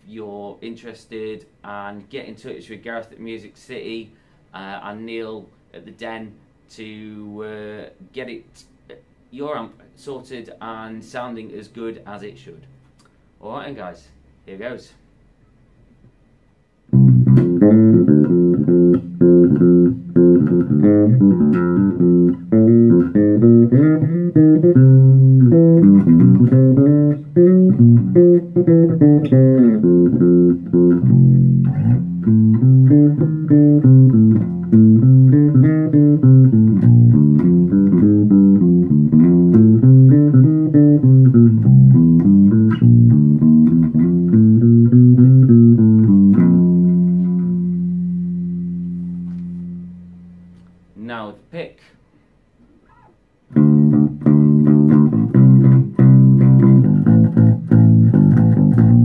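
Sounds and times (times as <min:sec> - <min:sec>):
electric bass plucked notes: 0:16.9 - 0:51.0, 0:53.5 - 0:59.0.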